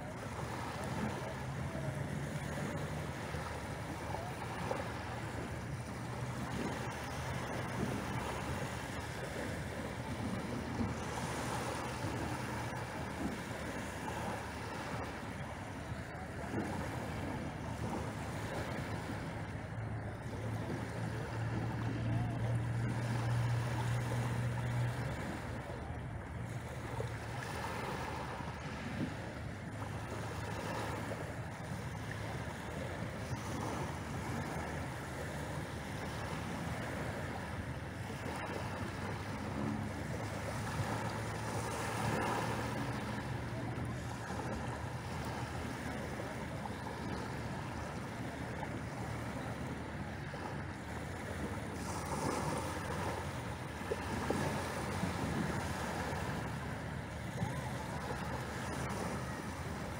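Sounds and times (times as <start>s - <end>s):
small waves washing up pebble beach: 51.7s - 56.8s.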